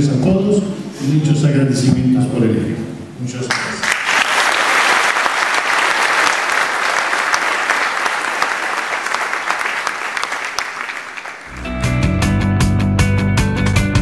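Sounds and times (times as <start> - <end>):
audience applauding: 3.5 - 11.7.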